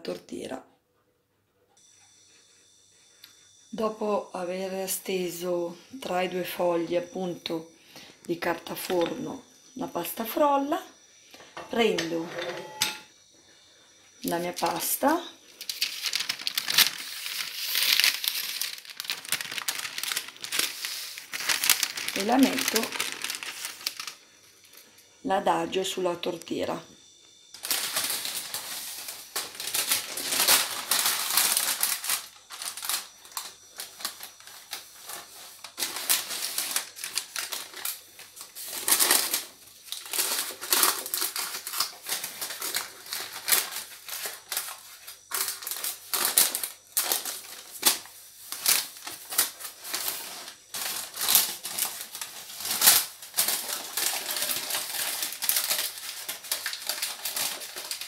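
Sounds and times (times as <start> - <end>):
baking paper rustling and crinkling: 14.2 - 26.4, 27.6 - 58.0.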